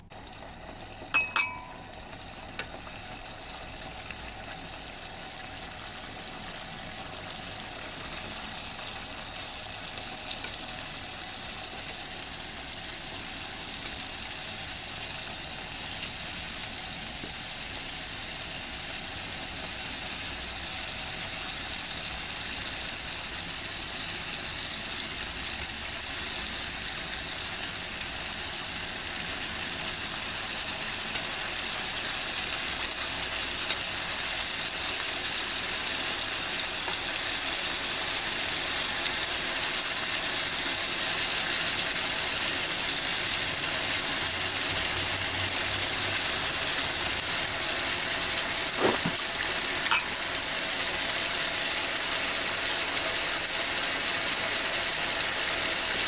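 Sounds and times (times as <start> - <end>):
sauce sizzling and bubbling: 0.0 - 56.0
sharp ringing clink: 1.2 - 2.0, 49.8 - 50.1.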